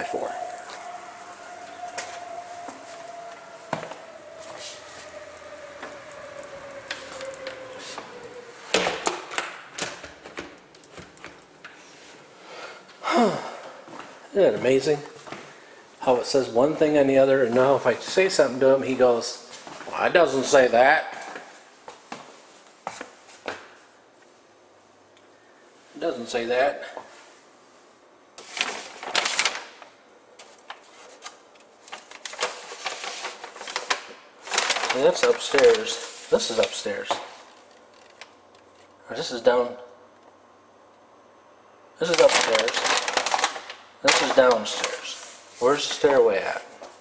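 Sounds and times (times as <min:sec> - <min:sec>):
paper sheets rustling and crinkling: 0:28.4 - 0:38.3, 0:42.0 - 0:47.0.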